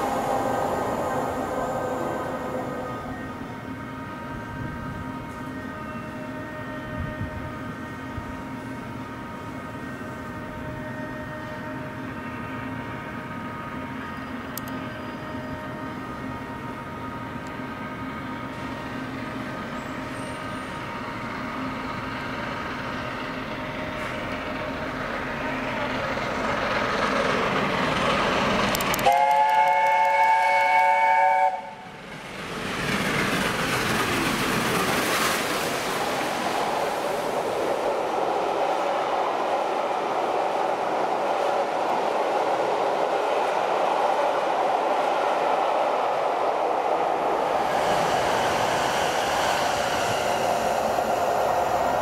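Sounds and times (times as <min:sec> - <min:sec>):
steam locomotive chime whistle: 0:00.0 - 0:18.9, 0:28.9 - 0:31.8
train wheel and rail noise: 0:00.0 - 0:52.0.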